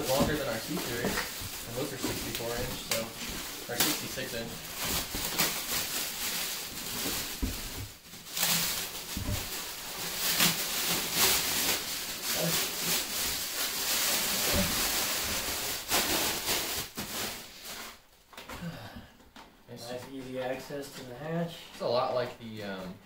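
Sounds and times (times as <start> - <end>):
plastic bag crackling: 0.0 - 18.0.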